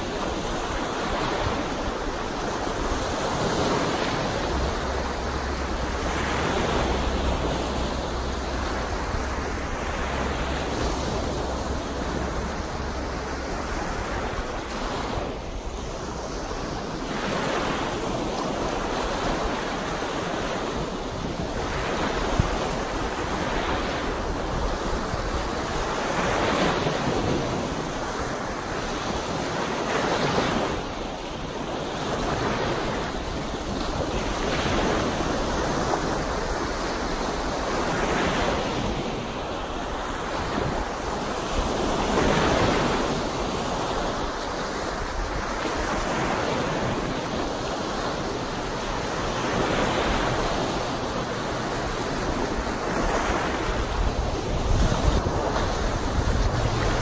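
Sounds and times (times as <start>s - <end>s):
waves breaking on shore: 0.0s - 57.0s.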